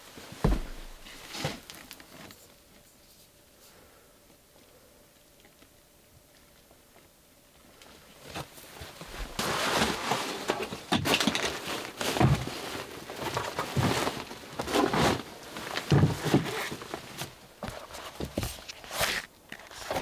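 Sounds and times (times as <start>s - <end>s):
dull thumps: 0.4s - 1.6s
backpack fabric rustling: 8.2s - 20.0s.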